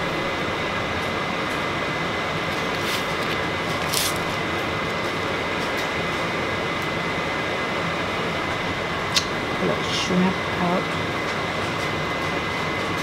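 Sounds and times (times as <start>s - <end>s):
faint high whine: 0.0s - 5.5s.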